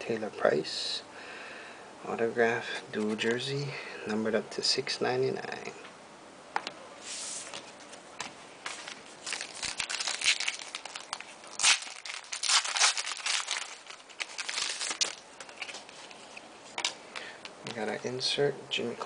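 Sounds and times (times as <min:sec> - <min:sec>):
wrapper crinkling and tearing: 0:08.7 - 0:17.0.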